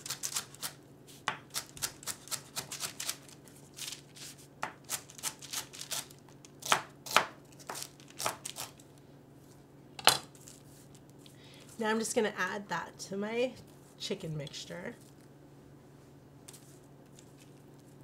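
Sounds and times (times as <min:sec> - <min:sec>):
knife chopping celery on board: 0:00.0 - 0:02.9, 0:06.6 - 0:08.4.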